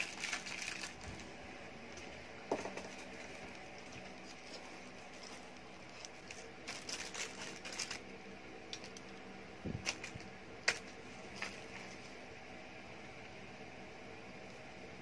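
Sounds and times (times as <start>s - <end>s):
plastic packaging crinkling: 0.0s - 1.4s, 2.5s - 9.2s.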